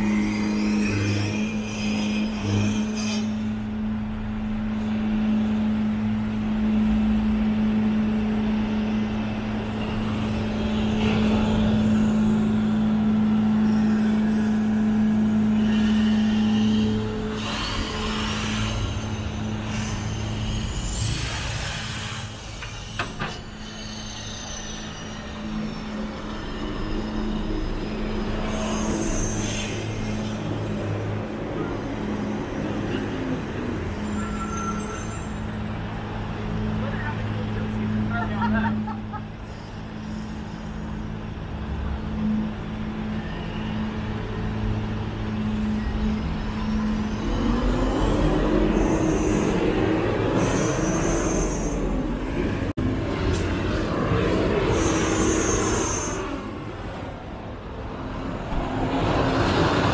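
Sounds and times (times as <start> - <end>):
vehicles passing: 35.1 - 59.9.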